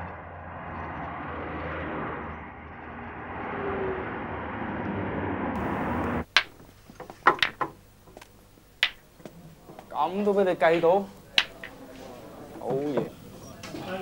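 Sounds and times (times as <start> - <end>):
car driving: 0.0 - 6.4.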